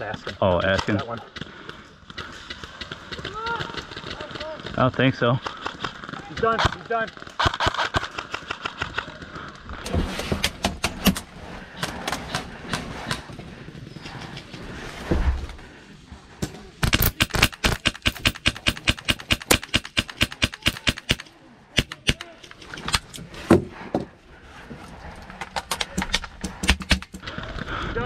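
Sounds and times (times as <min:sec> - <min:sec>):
airsoft guns firing: 0:05.4 - 0:09.2, 0:16.8 - 0:22.4, 0:25.8 - 0:27.2.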